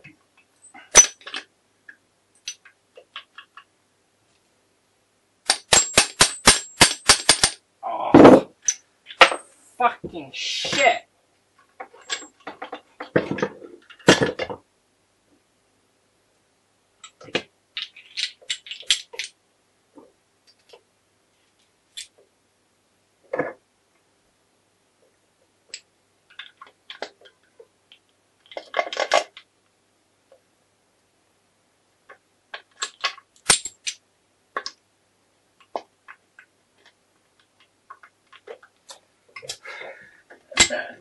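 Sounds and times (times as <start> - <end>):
metal gears clinking and knocking: 5.5 - 7.6.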